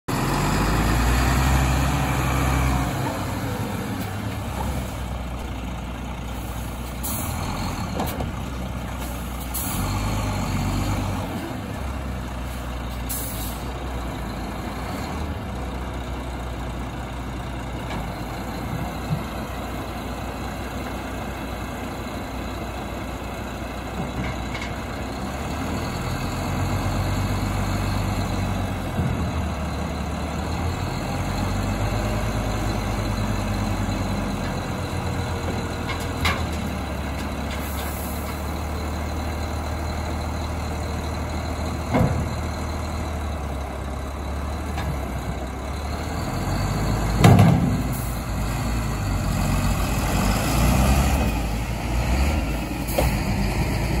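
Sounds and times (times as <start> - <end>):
diesel truck engine running: 0.1 - 54.0
metal knocks and clanks: 47.2 - 47.9.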